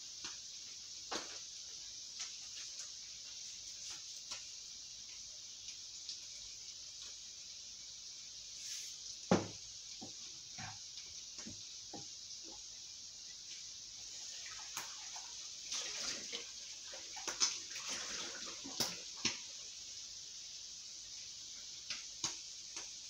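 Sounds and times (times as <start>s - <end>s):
vegetables sizzling in a pan: 0.0s - 23.0s.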